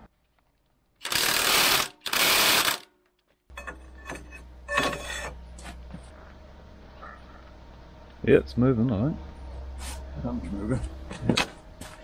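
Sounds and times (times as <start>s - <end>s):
low steady hum: 2.9s - 12.0s.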